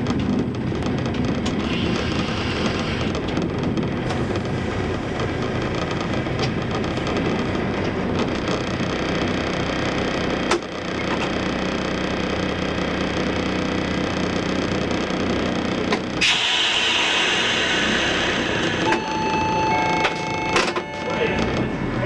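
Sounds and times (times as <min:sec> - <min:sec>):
diesel engine idling: 0:00.0 - 0:22.0
steady tone: 0:15.0 - 0:22.0
loud hiss: 0:16.2 - 0:19.1.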